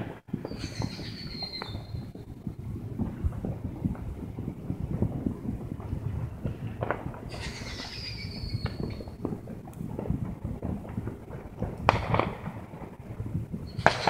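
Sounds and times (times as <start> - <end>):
firework whistle: 0.0 - 2.3, 7.3 - 9.2, 13.6 - 14.0
firework crack: 0.0 - 14.0
low background rumble: 0.5 - 13.8.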